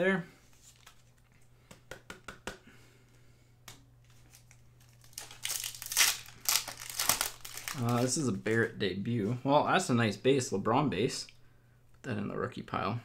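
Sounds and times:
wrapper crinkling and tearing: 4.1 - 8.5.

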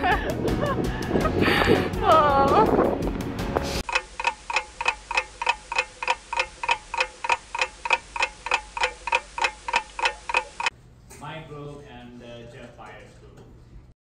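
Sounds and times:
clock-like ticking: 3.8 - 10.7.

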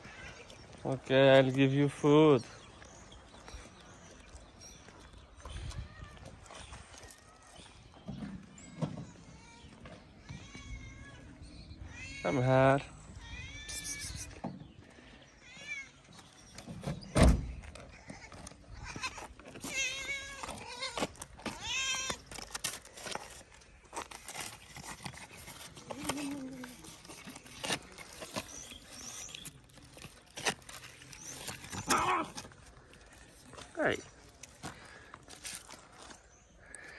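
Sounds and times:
cats meowing: 13.1 - 14.4, 17.9 - 22.4, 31.7 - 32.5.

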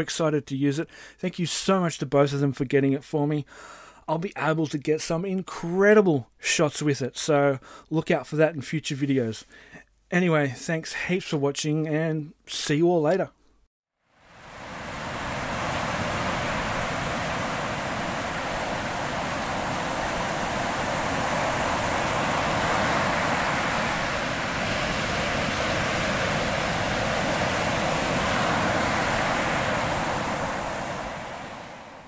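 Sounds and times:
ocean surf breaking on beach: 14.1 - 32.0.

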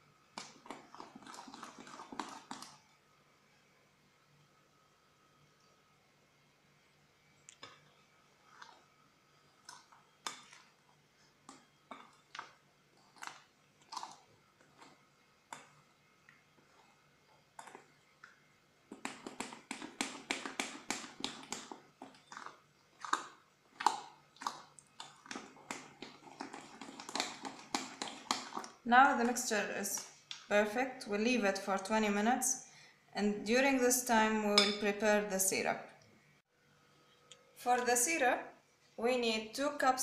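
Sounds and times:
spoon stirring batter in glass bowl: 0.2 - 3.0, 7.4 - 32.0, 33.6 - 35.6, 37.7 - 38.3.

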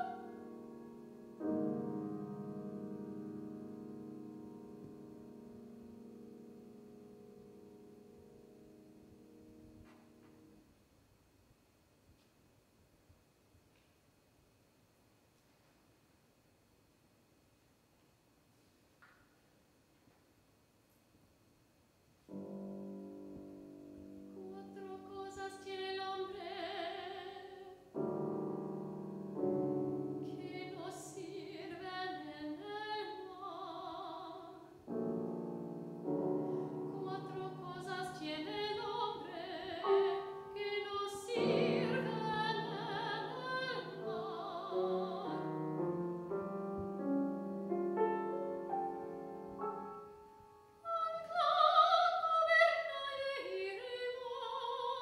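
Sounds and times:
soprano singing with vibrato: 0.0 - 0.7, 24.3 - 27.9, 30.0 - 34.8, 36.3 - 46.2, 50.8 - 55.0
grand piano accompaniment: 0.0 - 10.7, 22.3 - 27.3, 27.9 - 51.2.

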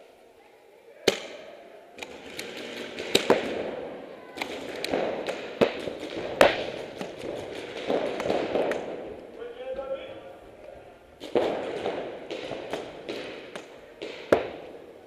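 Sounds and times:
paintball markers firing: 1.0 - 3.8, 4.4 - 9.2, 11.2 - 14.8.

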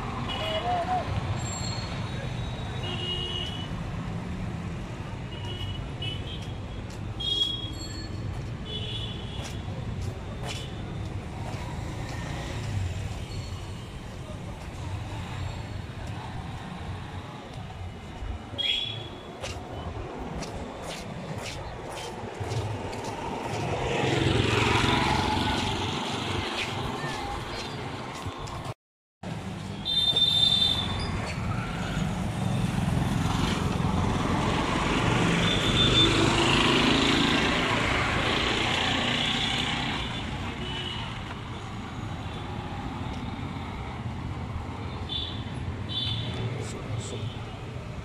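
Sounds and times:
traffic rumble: 0.0 - 48.0
short high-pitched squeaks: 1.4 - 2.6, 7.4 - 8.3
auto-rickshaw passing: 23.3 - 26.4, 30.9 - 44.9.

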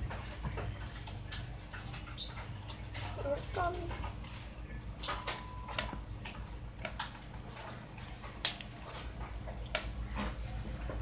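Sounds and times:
slime wet clicks and pops: 8.4 - 8.7.

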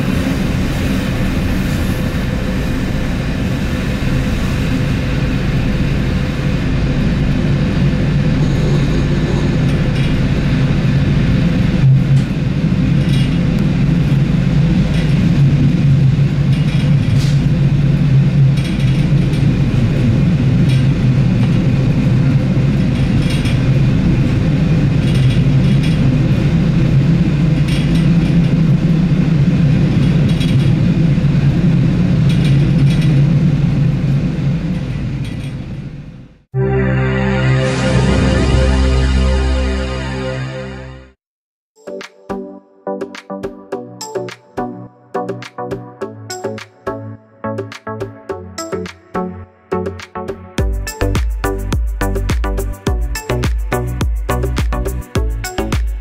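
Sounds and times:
wheels rumbling on rails: 0.0 - 36.5.

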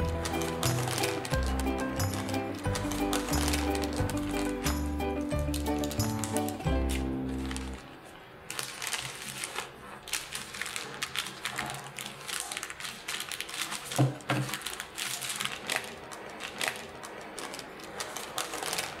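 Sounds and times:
parchment paper crinkling: 0.0 - 19.0.

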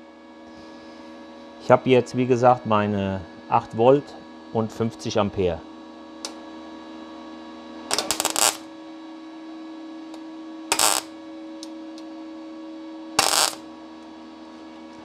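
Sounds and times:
crackling welding arc: 7.9 - 8.6, 10.7 - 11.1, 13.2 - 13.6
welder hum: 7.9 - 8.7, 10.1 - 12.1, 13.2 - 13.7.

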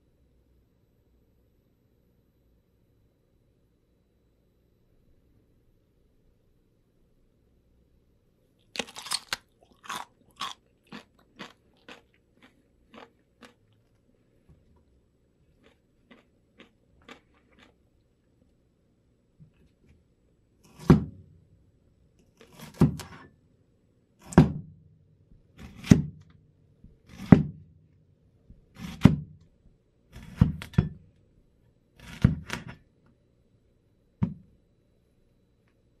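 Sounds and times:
axe chopping onto wooden bench: 20.8 - 21.2.

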